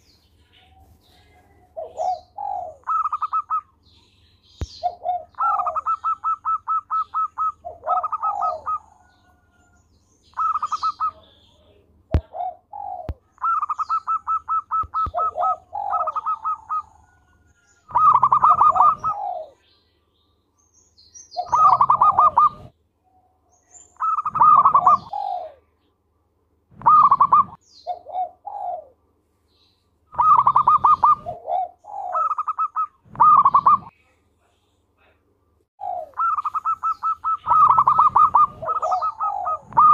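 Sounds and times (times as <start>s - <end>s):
dove cooing: 0.6s - 3.7s, 4.6s - 9.7s, 10.3s - 19.6s, 21.4s - 22.7s, 24.0s - 25.7s, 26.8s - 29.0s, 30.1s - 33.9s, 35.8s - 39.9s.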